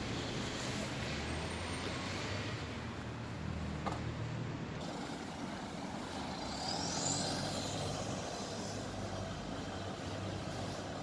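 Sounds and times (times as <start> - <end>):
high-pitched squeal: 6.1 - 9.5.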